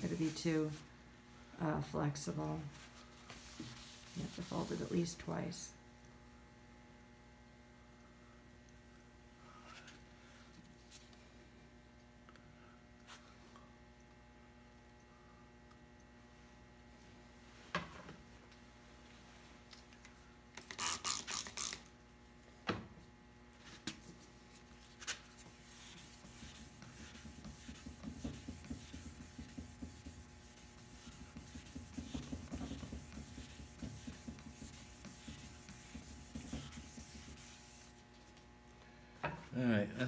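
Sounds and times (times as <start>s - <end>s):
spray bottle spritzing water: 20.6s - 21.8s
wet sandpaper rubbing on wood: 25.4s - 38.0s.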